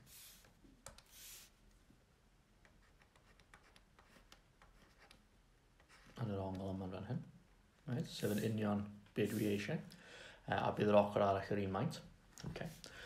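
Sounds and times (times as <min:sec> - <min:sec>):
stylus strokes on tablet: 0:00.0 - 0:01.6, 0:08.2 - 0:09.7.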